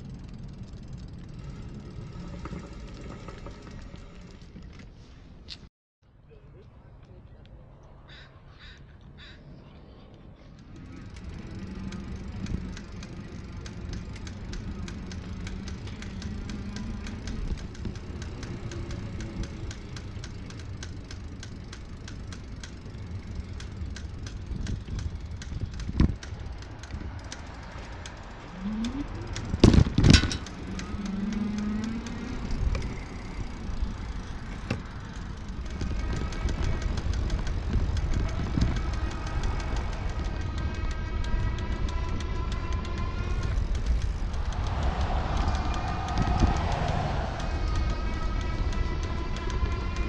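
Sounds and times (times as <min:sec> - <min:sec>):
wind and road rumble: 0:00.0 - 0:50.0
rattle of light clicks: 0:10.1 - 0:50.0
motor hum with whine: 0:10.5 - 0:50.0.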